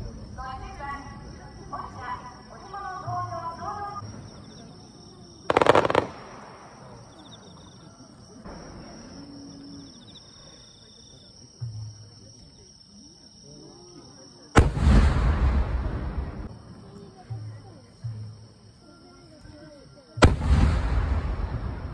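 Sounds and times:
firework shells bursting: 0:05.5 - 0:06.9
deep rumbling firework boom: 0:14.6 - 0:16.5, 0:20.2 - 0:21.9.

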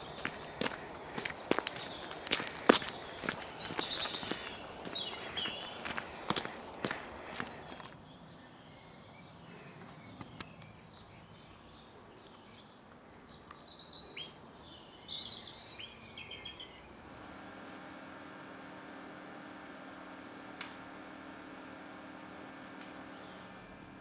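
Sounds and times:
steady low hum: 0:00.0 - 0:10.8
small birds chirping: 0:00.0 - 0:17.0.

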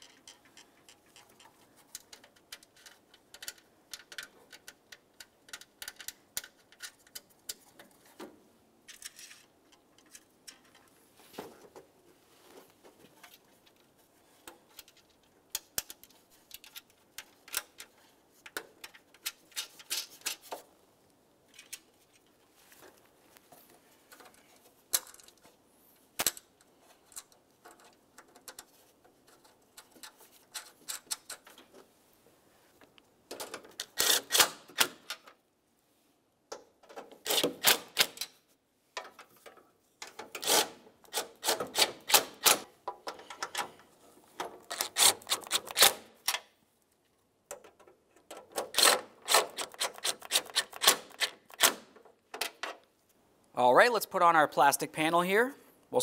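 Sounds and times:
faint clicks and rattles of parts: 0:00.0 - 0:32.0, 0:32.7 - 0:35.5, 0:36.4 - 0:53.6.

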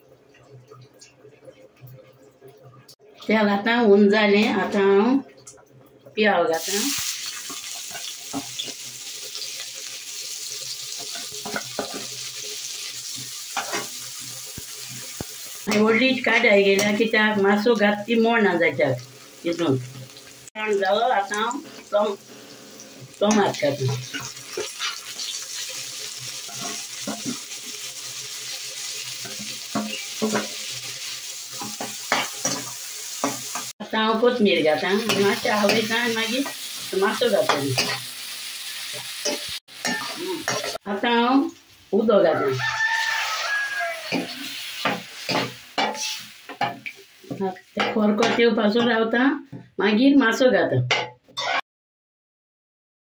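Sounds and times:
onions sizzling in hot oil: 0:06.6 - 0:49.0
spoon scraping a pan: 0:10.6 - 0:16.0, 0:23.3 - 0:33.7, 0:34.9 - 0:38.1, 0:38.8 - 0:40.8, 0:42.6 - 0:48.9, 0:50.9 - 0:51.6.

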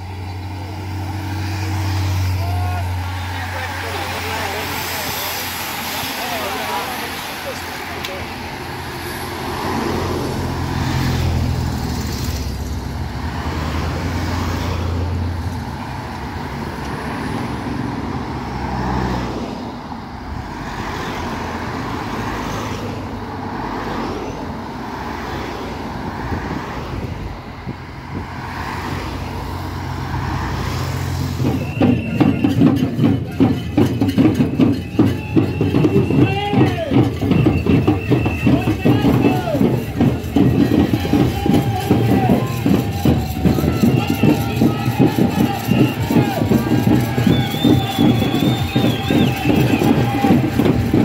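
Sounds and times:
vehicles driving past: 0:00.0 - 0:51.0
rapid rhythmic clatter: 0:31.0 - 0:51.0.

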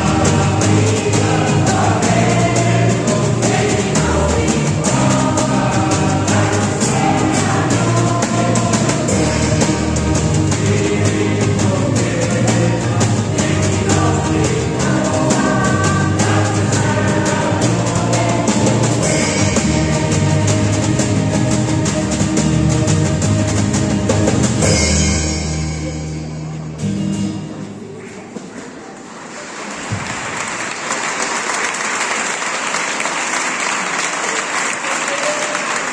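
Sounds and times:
choir singing: 0:00.0 - 0:25.8
acoustic guitar: 0:00.0 - 0:28.3
crowd applauding: 0:28.0 - 0:35.9.

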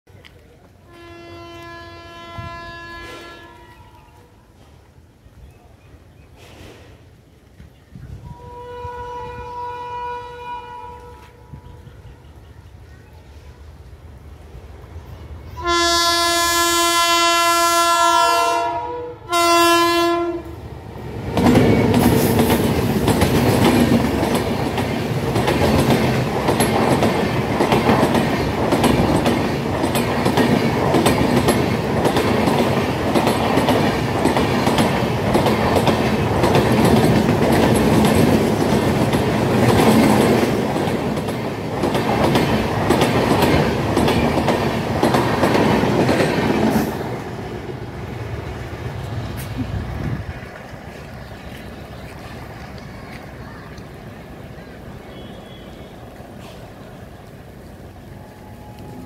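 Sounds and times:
locomotive horn: 0:00.9 - 0:04.0, 0:08.2 - 0:12.1, 0:15.6 - 0:20.6, 0:55.0 - 0:56.2
train rushing past: 0:08.2 - 0:59.0
train wheel clatter: 0:21.3 - 0:47.4.

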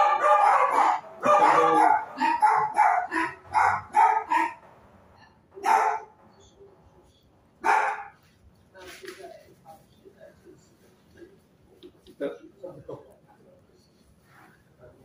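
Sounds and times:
dog barking and crying: 0:00.0 - 0:04.7, 0:05.6 - 0:06.2, 0:07.6 - 0:08.2.

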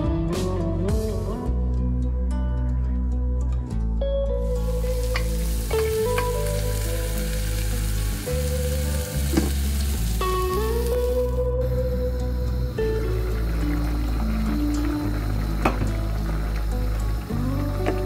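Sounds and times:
background music with low notes: 0:00.0 - 0:18.0
oil sizzling in a pot: 0:04.4 - 0:18.0.

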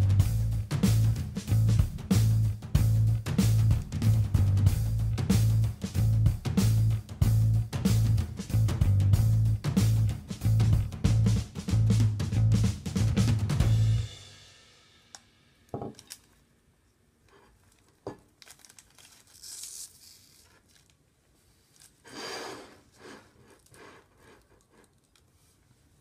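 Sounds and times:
plastic packet crinkling: 0:17.6 - 0:22.0.

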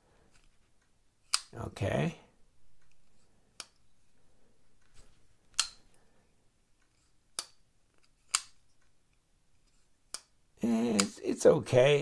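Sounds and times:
folding knife clicking open and shut: 0:01.3 - 0:01.5, 0:08.3 - 0:08.6.

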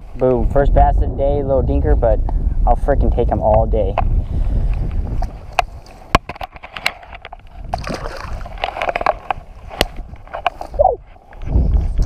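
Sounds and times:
wind rumble on microphone: 0:00.0 - 0:12.0
fish splashing in water: 0:07.7 - 0:09.2.

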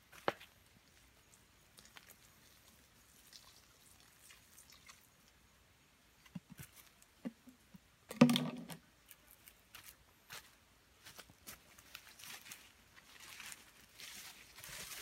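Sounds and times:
water pouring onto leaves: 0:01.8 - 0:05.3
footsteps on dry leaves: 0:09.7 - 0:15.0.

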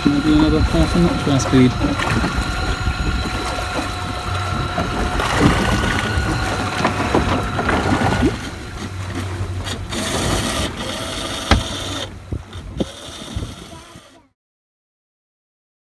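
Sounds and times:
water rushing: 0:00.0 - 0:14.1
electric outboard motor whine: 0:00.0 - 0:14.4
wind: 0:00.0 - 0:14.4
sharp knock: 0:11.5 - 0:11.7.

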